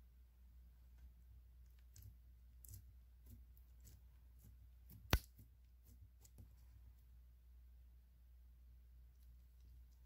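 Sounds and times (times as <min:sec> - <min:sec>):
sharp slime pop: 0:04.9 - 0:05.4.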